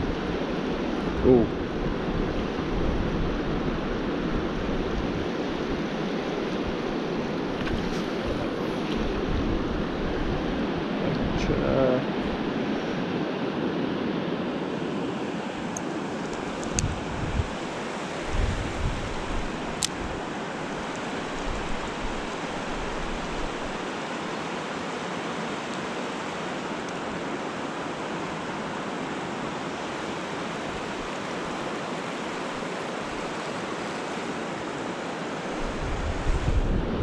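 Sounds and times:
river rushing over riffles: 0.0 - 37.0
wind buffeting microphone: 1.0 - 11.6, 16.3 - 20.3, 35.6 - 37.0.

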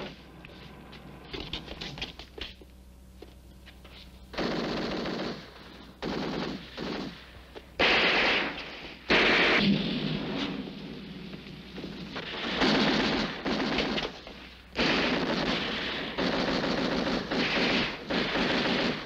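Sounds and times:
automatic gunfire bursts: 4.3 - 9.7, 12.2 - 19.0.

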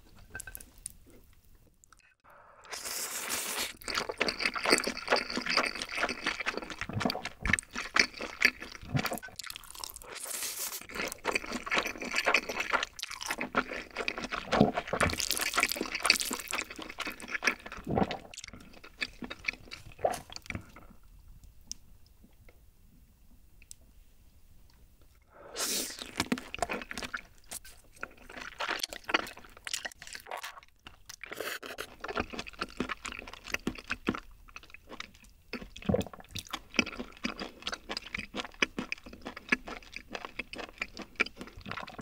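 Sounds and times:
slurping noodles: 2.6 - 18.5, 25.4 - 27.2
wet chewing: 2.7 - 20.9, 25.9 - 42.0.

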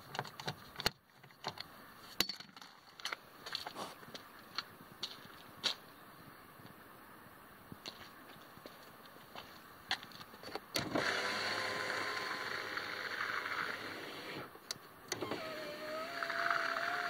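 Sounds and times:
power window motor running: 10.8 - 14.5, 15.1 - 17.0.

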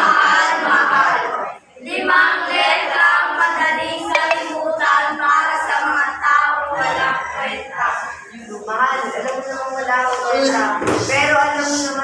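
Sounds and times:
students singing in unison: 0.0 - 7.8.

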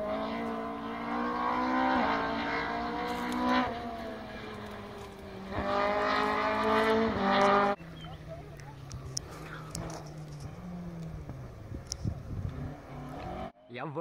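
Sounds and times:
rally car engine revving: 0.0 - 13.6.

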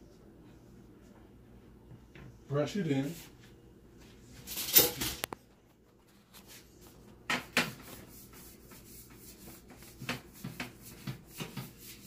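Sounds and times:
brush rubbing on sheet pan: 6.2 - 12.0.

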